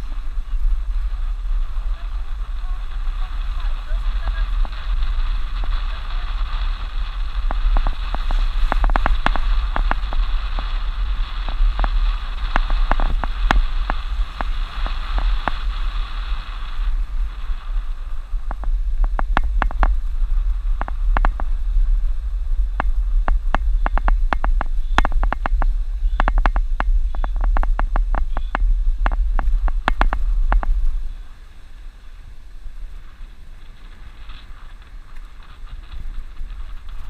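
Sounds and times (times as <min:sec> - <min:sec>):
vehicle rumble on dirt road: 0:00.0 - 0:37.0
knocks and clicks over bumps: 0:07.4 - 0:15.8, 0:18.4 - 0:21.6, 0:22.7 - 0:30.9.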